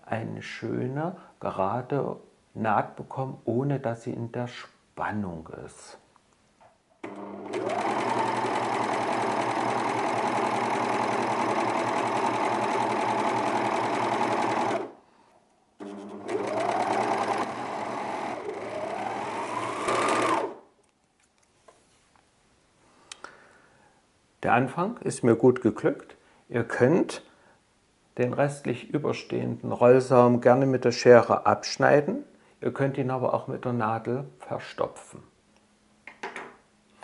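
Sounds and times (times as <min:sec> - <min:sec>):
overlock sewing machine running: 0:07.0 - 0:15.0, 0:15.8 - 0:20.6.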